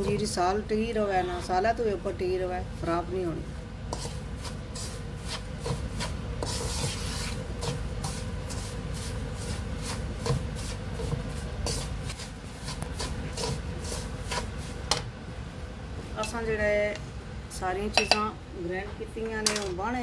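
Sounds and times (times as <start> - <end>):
wooden spatula scraping a wok: 3.9 - 15.0.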